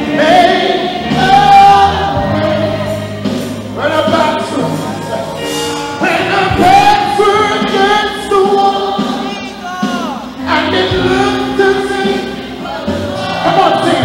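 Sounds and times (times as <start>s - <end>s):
congregation singing worship song: 0.0s - 14.0s
instrumental accompaniment: 0.0s - 14.0s.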